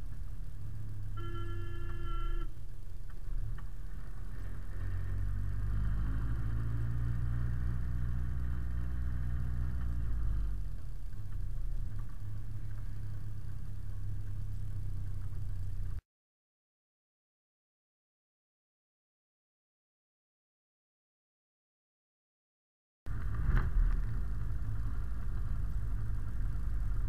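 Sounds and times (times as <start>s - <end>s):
truck engine and road noise: 0.0s - 16.0s, 23.1s - 27.0s.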